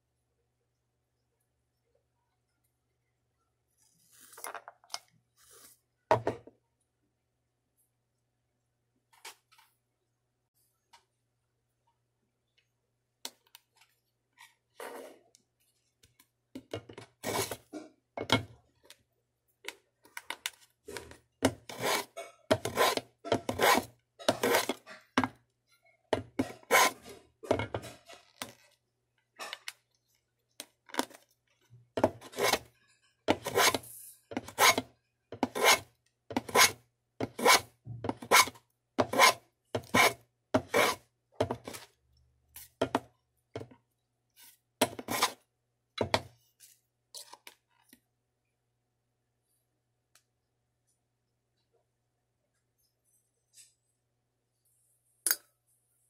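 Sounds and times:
hand tool rasping on wood: 21.7s - 24.8s.

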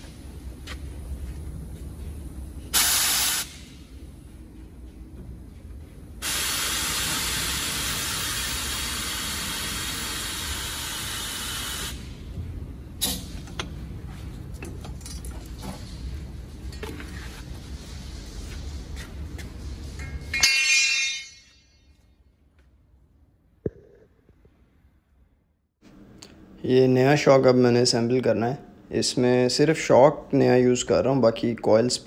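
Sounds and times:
compressed air hissing: 2.7s - 4.0s, 6.2s - 12.3s.

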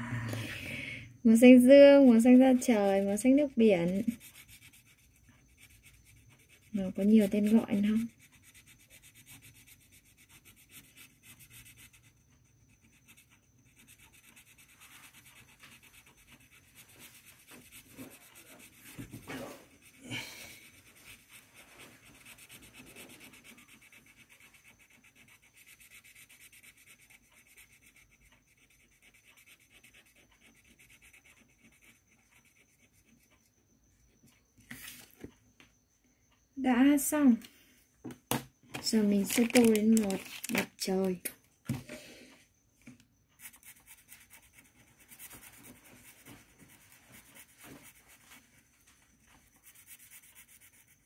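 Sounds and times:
pencil scratching on paper: 1.3s - 33.5s, 43.4s - 48.6s, 49.4s - 51.0s.

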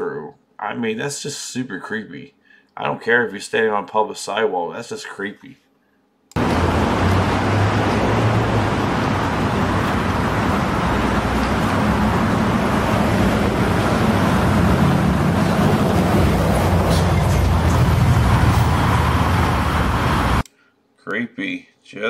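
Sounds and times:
low engine hum: 6.4s - 20.4s
traffic noise: 6.4s - 20.4s.

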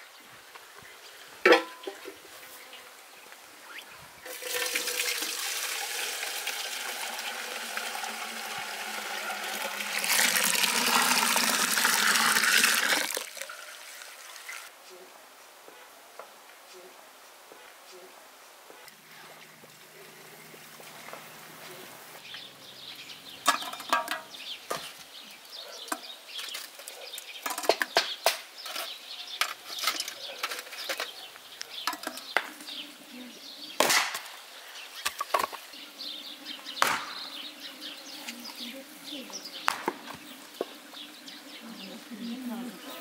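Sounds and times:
axe chopping wood: 33.8s - 34.3s, 36.8s - 37.2s, 39.7s - 40.1s.

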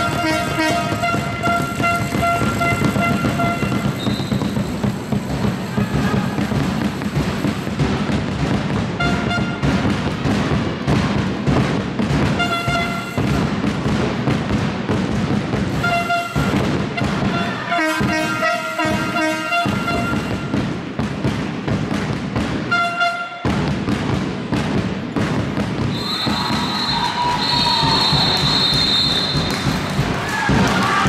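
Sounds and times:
horn blasts: 0.0s - 4.9s, 9.0s - 9.7s, 12.4s - 13.4s, 15.7s - 20.5s, 22.7s - 23.4s, 25.9s - 31.0s
high whistle: 0.0s - 5.0s, 25.9s - 30.0s
ball bouncing on court: 0.0s - 31.0s.

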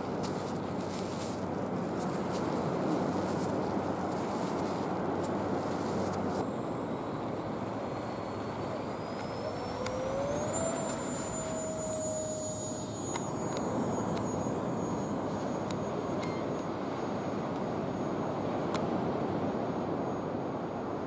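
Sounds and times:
model jet engines whining: 5.4s - 21.0s.

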